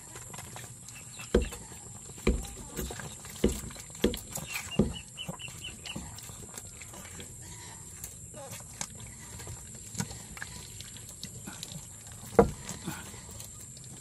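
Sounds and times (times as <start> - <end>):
goats thumping against phone: 1.3 - 5.3.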